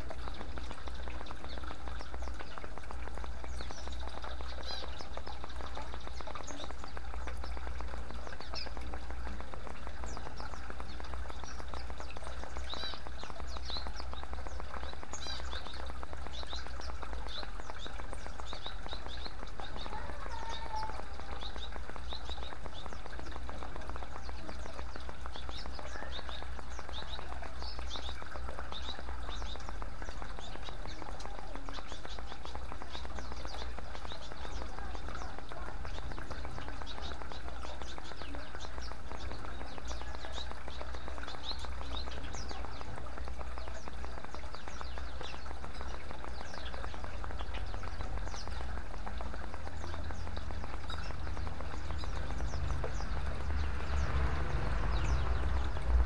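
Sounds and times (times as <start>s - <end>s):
small birds chirping: 0.0s - 56.0s
water trickling and splashing: 0.0s - 56.0s
steady low rumble: 46.4s - 56.0s.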